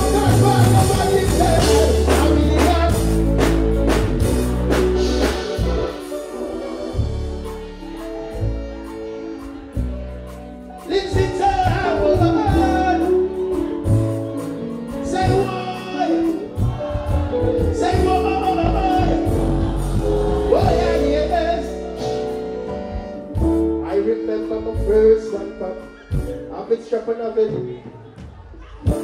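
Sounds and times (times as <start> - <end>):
man singing into microphone: 0.0 - 3.4, 10.8 - 14.0, 15.0 - 19.5, 20.5 - 22.2, 23.8 - 28.2
reggae backing track: 0.0 - 29.0.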